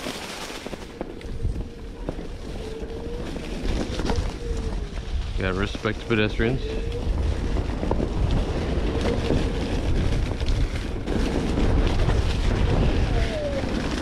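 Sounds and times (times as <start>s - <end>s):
tyre rolling on dirt trail: 0.0s - 14.0s
wind buffeting microphone: 0.0s - 14.0s.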